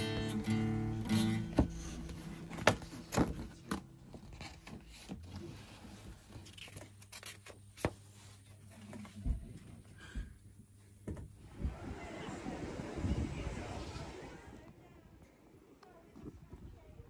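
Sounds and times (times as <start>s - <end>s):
pages being turned: 2.1s - 8.5s.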